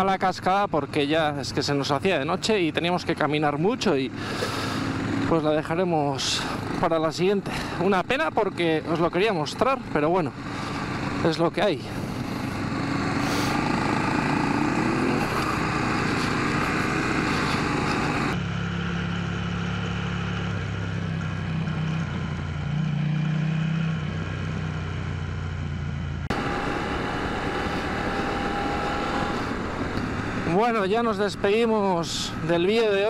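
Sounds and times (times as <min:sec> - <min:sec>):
motorcycle engines revving: 0:00.0 - 0:33.0
dull low engine note: 0:07.5 - 0:23.5, 0:24.1 - 0:33.0.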